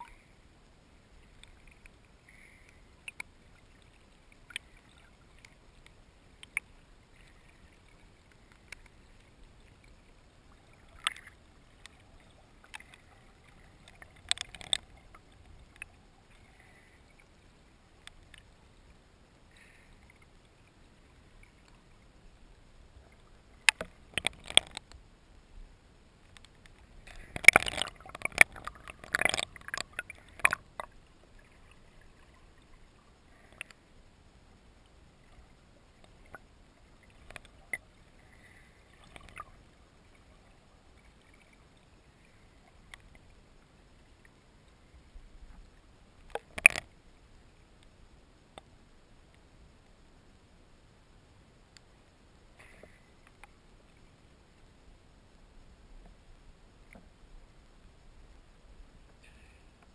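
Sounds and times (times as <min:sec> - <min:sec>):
water splashing and crackling: 0:00.0 - 0:50.0, 0:51.7 - 0:59.9
sharp underwater clicks: 0:01.2 - 0:10.0, 0:10.6 - 0:17.2, 0:23.1 - 0:25.0, 0:26.2 - 0:32.7, 0:33.3 - 0:33.8, 0:36.0 - 0:37.9, 0:38.9 - 0:39.6, 0:46.2 - 0:47.0.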